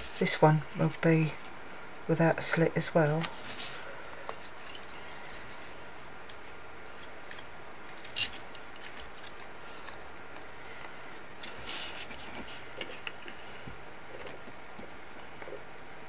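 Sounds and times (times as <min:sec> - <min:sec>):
card rustling: 0:03.1 - 0:13.2.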